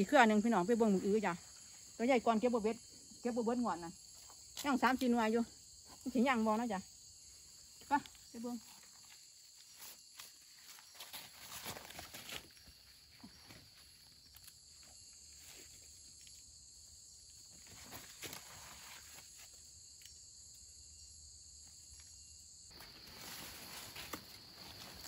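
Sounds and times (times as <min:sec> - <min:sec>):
forest insects droning: 0:00.0 - 0:25.0
footsteps in leaf litter: 0:09.6 - 0:12.6, 0:22.7 - 0:25.0.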